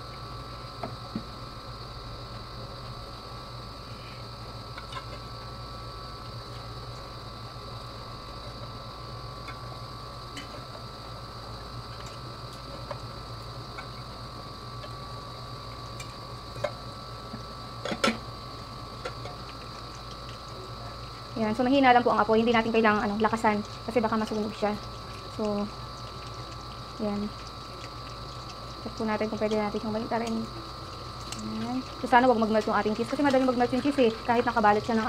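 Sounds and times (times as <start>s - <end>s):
oil sizzling with small pops: 0.0s - 35.0s
steady hum: 0.0s - 35.0s.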